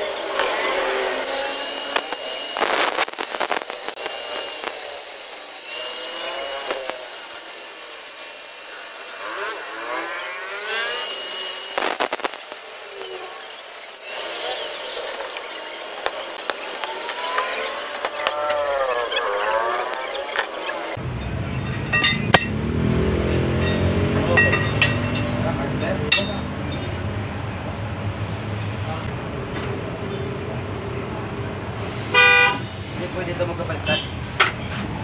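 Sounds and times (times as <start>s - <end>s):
angle grinder cutting metal: 0.0s - 21.0s.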